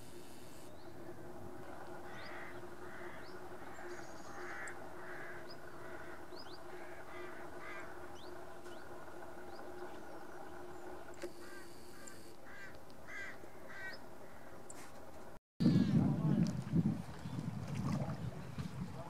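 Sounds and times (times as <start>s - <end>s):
steady low hum: 0.0s - 19.0s
crows cawing: 2.0s - 8.1s, 11.4s - 14.6s.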